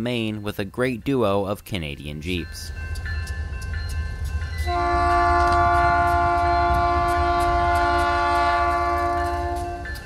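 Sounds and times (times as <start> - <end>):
locomotive air horn chord: 4.7 - 9.8.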